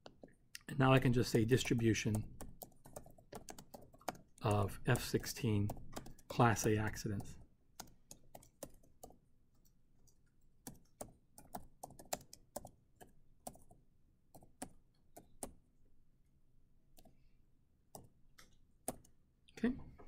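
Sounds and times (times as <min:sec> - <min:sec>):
computer keyboard typing: 0:01.2 - 0:15.6, 0:17.9 - 0:19.2.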